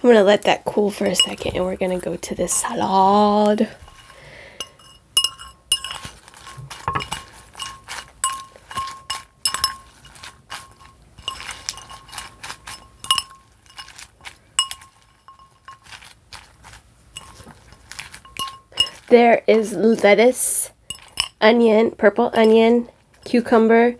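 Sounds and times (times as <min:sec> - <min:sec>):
metal fork clinking on glass bowl: 0:01.2 - 0:01.5, 0:03.9 - 0:16.0, 0:17.2 - 0:19.1, 0:20.9 - 0:21.4, 0:22.4 - 0:22.7.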